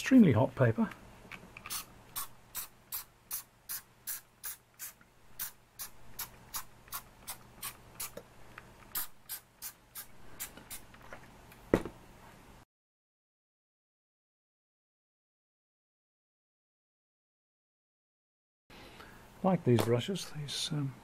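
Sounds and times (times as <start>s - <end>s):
spray bottle hissing puffs: 1.7s - 8.2s, 8.9s - 10.8s.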